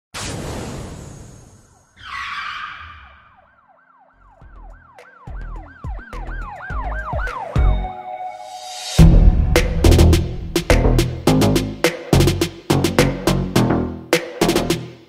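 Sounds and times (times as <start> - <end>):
siren-like wail: 1.7 - 9.0
whoosh: 8.5 - 11.3
deep bass hits: 9.0 - 13.8.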